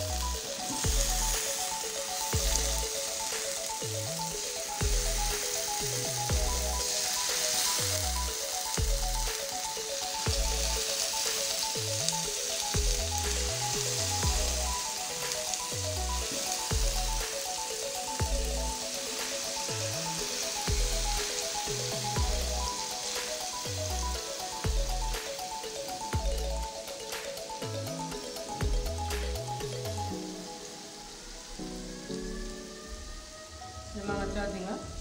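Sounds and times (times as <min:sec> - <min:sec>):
background music: 0:00.0 - 0:35.0
food sizzling in a pan: 0:00.0 - 0:35.0.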